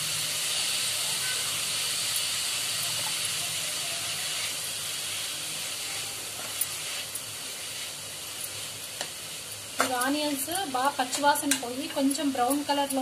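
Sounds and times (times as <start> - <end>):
onions sizzling in a pan: 0.0 - 13.0.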